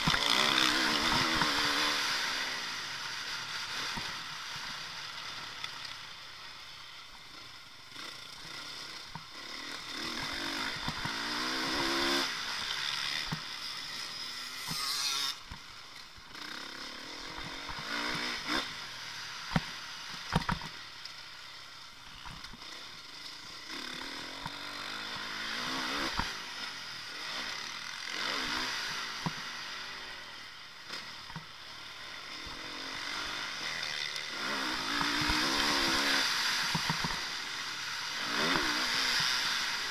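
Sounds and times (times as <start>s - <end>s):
motorcycle engine revving: 0.0s - 39.9s.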